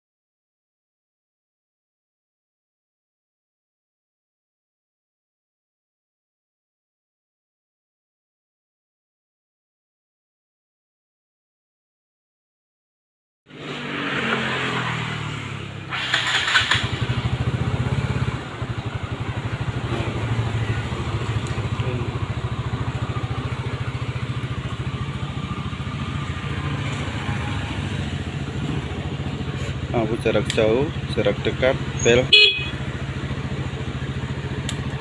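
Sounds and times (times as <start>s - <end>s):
scooter engine starting and idling: 13.5s - 35.0s.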